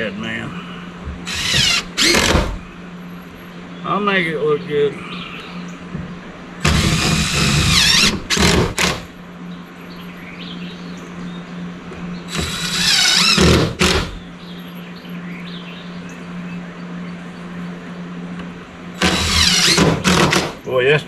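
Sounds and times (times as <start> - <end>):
cordless drill driving screws: 1.3 - 2.6, 6.6 - 9.1, 12.3 - 14.2, 19.0 - 20.6.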